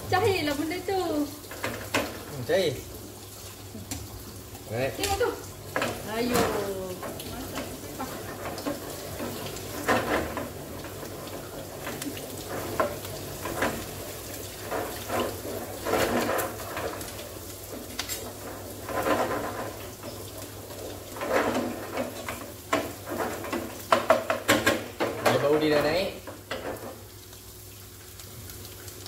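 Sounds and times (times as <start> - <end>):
soft sizzle of frying: 0.0 - 29.0
spatula scraping a pan: 11.9 - 24.6.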